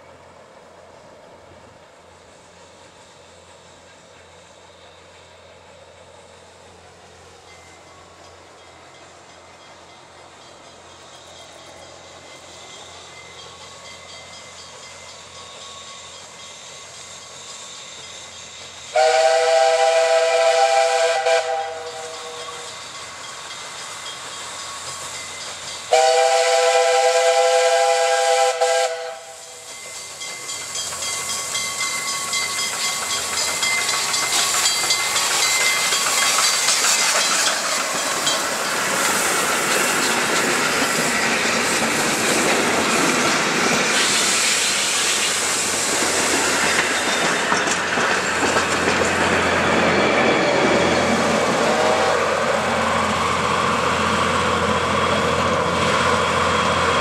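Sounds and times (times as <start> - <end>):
steam train hissing and running: 0.0 - 57.0
steam whistle blasts: 17.6 - 22.8, 25.9 - 29.7, 51.3 - 53.3.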